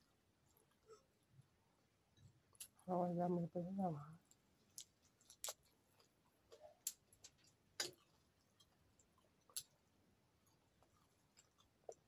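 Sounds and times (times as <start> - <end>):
chewing clicks and smacks: 4.8 - 12.0.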